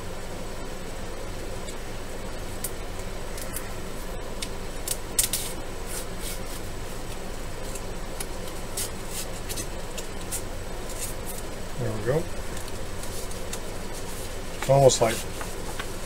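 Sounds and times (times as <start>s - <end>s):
paper wrapper crinkling: 12.2s - 16.0s.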